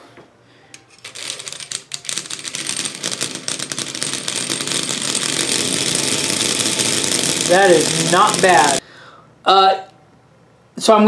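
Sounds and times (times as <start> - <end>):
toy train motor rattling buzz: 0.8 - 8.8.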